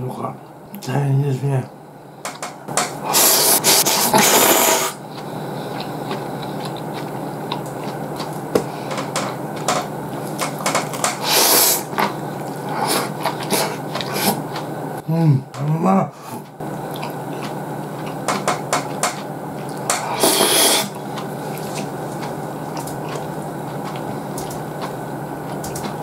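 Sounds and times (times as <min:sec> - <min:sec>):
noodles being slurped: 0:03.1 - 0:08.4, 0:11.2 - 0:14.8, 0:19.7 - 0:25.0
chewing: 0:03.1 - 0:14.8, 0:16.2 - 0:26.0.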